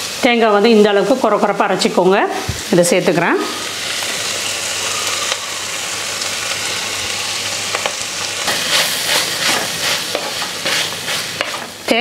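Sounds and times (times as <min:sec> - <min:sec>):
beans sizzling in a pot: 0:00.0 - 0:12.0
wooden spatula scraping a pot: 0:08.5 - 0:11.7.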